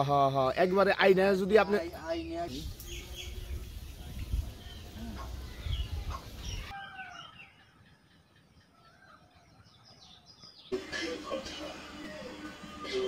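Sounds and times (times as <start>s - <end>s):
birds chirping: 0.0s - 11.5s.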